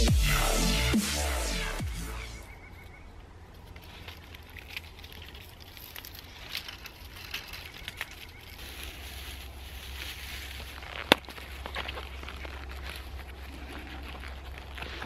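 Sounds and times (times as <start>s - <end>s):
bark tearing and crackling: 3.5s - 15.0s.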